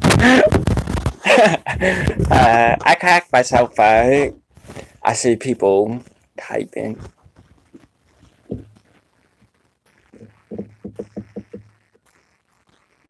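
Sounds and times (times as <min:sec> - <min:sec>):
man chuckling softly: 0:01.2 - 0:02.5.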